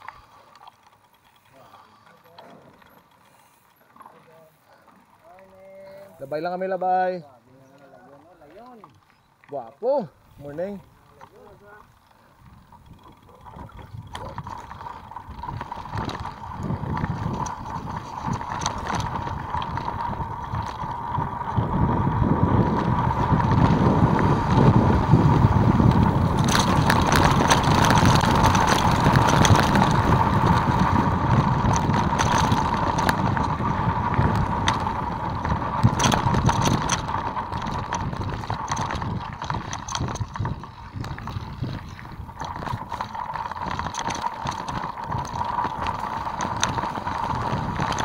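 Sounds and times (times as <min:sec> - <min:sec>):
bicycle tyre rumble: 0:00.0 - 0:48.0
bike knocks and rattles: 0:11.1 - 0:48.0
wind on microphone: 0:12.4 - 0:48.0.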